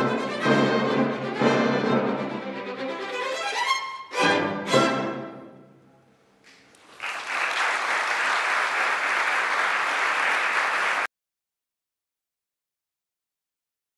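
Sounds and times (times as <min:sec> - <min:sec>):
audience applause: 0:06.5 - 0:11.1.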